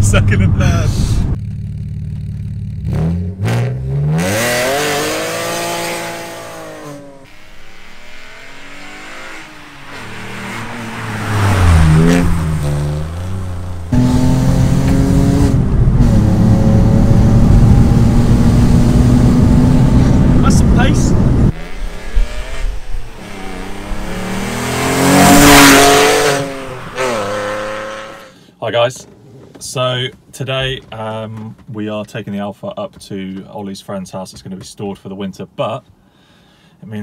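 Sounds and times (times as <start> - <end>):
car engine revving and accelerating: 2.8 - 28.3.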